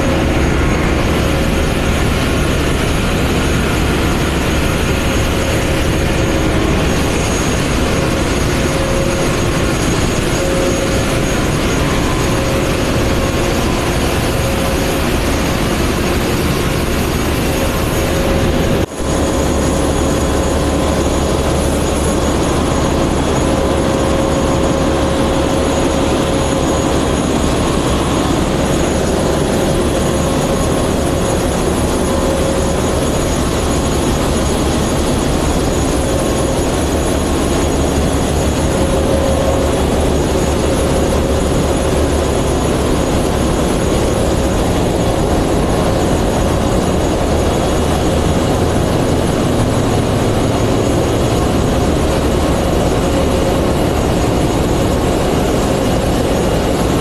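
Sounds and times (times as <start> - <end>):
engine-room machinery din: 0.0 - 57.0
machinery whining tones: 0.0 - 57.0.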